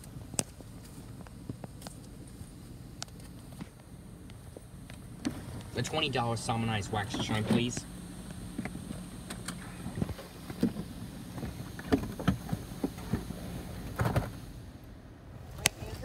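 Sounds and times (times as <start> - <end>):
car idling: 0.0 - 16.0
clicks and knocks inside car: 10.0 - 13.3.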